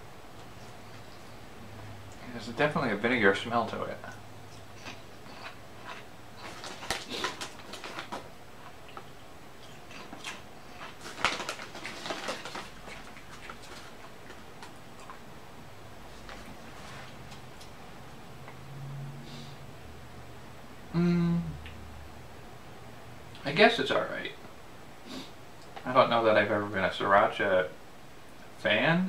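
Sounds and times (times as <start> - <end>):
potato chip crunching: 4.6 - 15.2.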